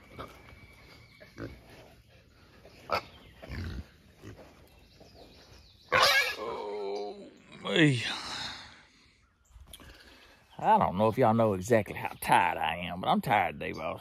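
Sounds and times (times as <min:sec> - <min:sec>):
wild hogs grunting: 0:00.0 - 0:04.8, 0:05.8 - 0:10.9.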